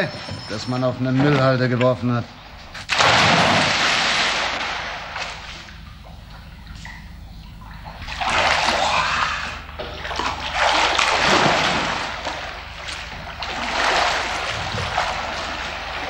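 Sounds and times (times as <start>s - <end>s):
swimmer splashing water: 0.0s - 16.0s.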